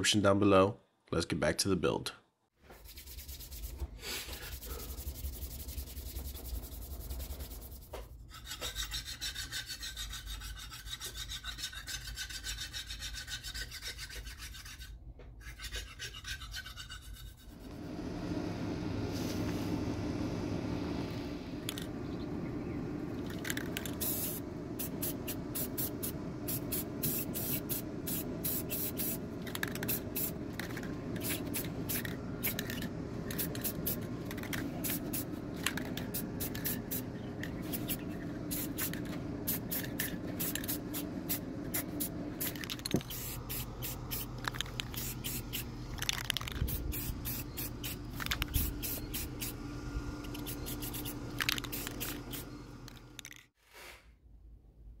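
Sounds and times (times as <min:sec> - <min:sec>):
aerosol spray can hissing: 0:02.8 - 0:07.9, 0:21.5 - 0:53.3.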